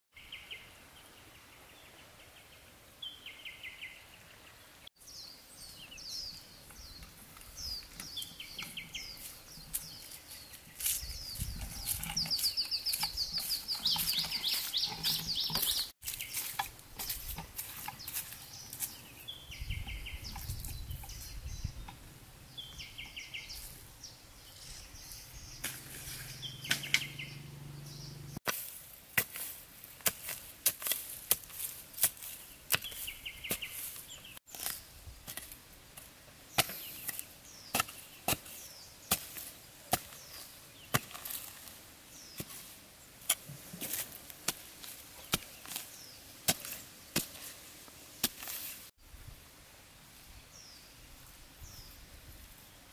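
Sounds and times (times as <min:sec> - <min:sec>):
machete chopping into soil: 0:25.6 - 0:27.2, 0:28.5 - 0:41.7, 0:42.3 - 0:47.6, 0:48.2 - 0:48.8.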